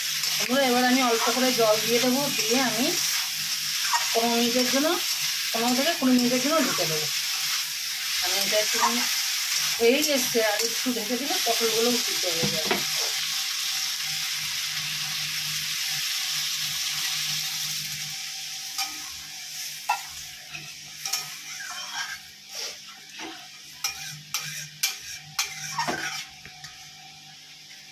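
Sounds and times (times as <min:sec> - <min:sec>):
vegetables sizzling in oil: 0:00.0 - 0:27.9
spatula scraping and tapping pan: 0:19.9 - 0:22.2, 0:23.1 - 0:26.8.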